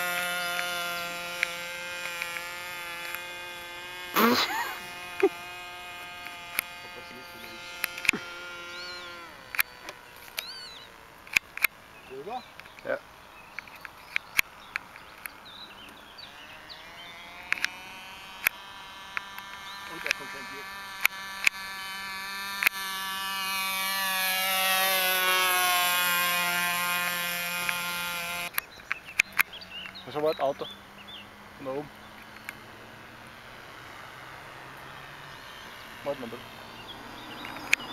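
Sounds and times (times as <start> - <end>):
sharp clicks: 0.0 - 16.0, 17.4 - 21.8, 22.4 - 22.8, 26.3 - 30.0, 32.2 - 32.6, 37.4 - 37.9
model aircraft engine buzzing: 0.0 - 37.9.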